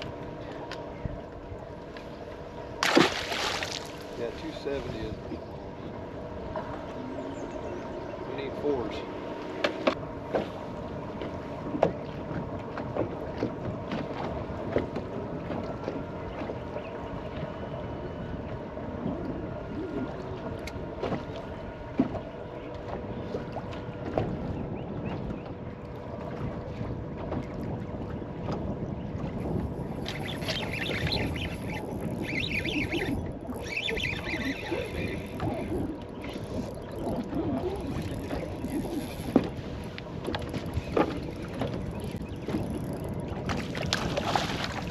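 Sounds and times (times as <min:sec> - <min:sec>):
water slapping against boat hull: 0:02.8 - 0:04.2, 0:09.4 - 0:16.6, 0:20.4 - 0:33.1, 0:34.7 - 0:44.9
wind on microphone: 0:02.8 - 0:08.4, 0:10.0 - 0:44.9.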